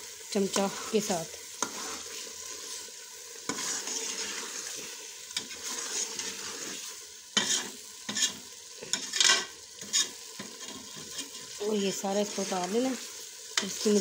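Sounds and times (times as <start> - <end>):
vegetables sizzling in oil: 0.0 - 14.0
spoon scraping pot: 1.6 - 11.6.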